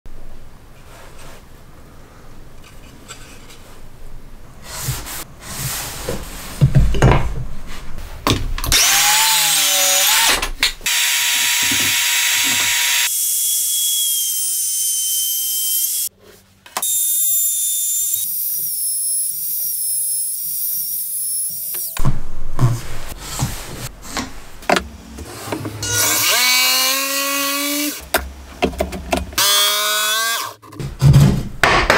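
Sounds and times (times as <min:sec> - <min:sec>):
wood knocks and handling: 0:06.1 - 0:07.6
trim router high whine: 0:10.9 - 0:16.1.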